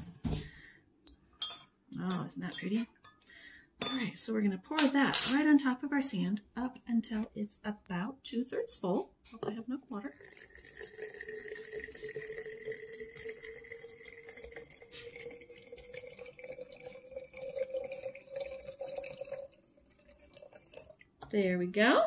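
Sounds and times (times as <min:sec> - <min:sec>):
water pouring into glass jar: 0:09.6 - 0:21.2.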